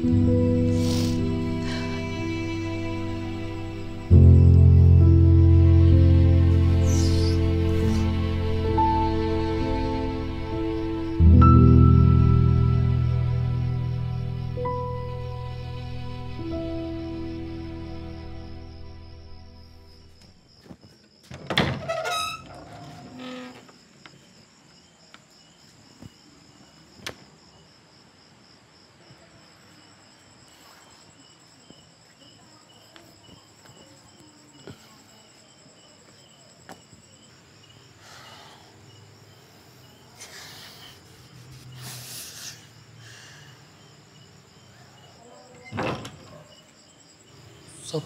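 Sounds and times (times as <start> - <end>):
crickets chirping: 0.0 - 48.0
wooden door creaking open: 21.2 - 23.9, 45.5 - 46.6.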